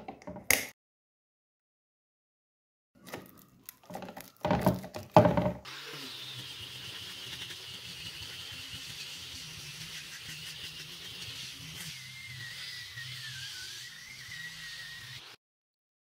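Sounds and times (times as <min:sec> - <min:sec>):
knocks and scrapes: 0:03.1 - 0:05.7
angle grinder sanding wood: 0:05.7 - 0:15.4
sandpaper discs rustling: 0:05.7 - 0:15.4.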